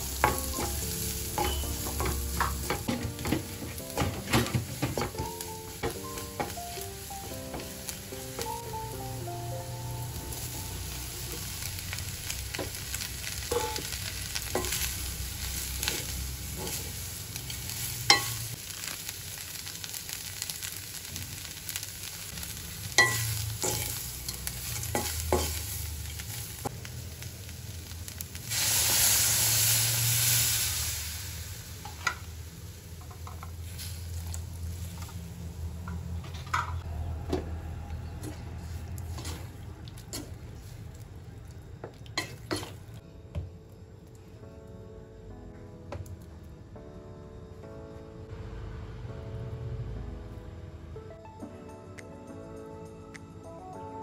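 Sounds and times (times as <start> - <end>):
meat frying in a pot: 0.0 - 43.0
loud rush of sizzling: 5.4 - 32.9.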